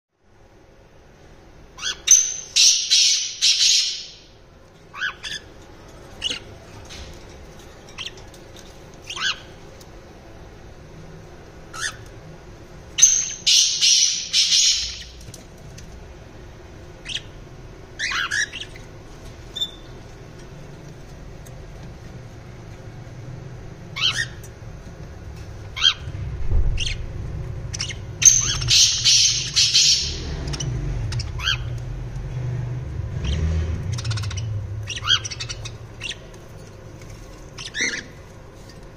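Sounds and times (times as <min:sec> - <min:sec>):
bird chirps: 0:01.8 - 0:04.3, 0:13.0 - 0:15.2, 0:27.7 - 0:31.8, 0:33.2 - 0:36.3
parrot screeching: 0:18.0 - 0:18.7, 0:34.0 - 0:36.2.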